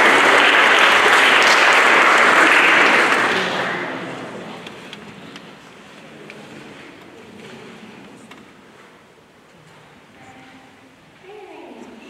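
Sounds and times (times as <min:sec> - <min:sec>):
audience applause: 0:00.0 - 0:05.0.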